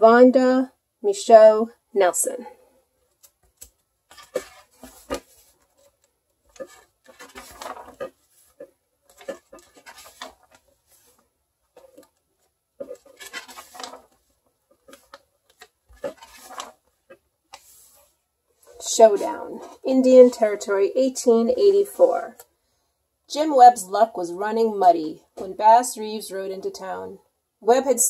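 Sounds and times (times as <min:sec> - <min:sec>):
paper pages rustling: 0:03.1 - 0:20.6.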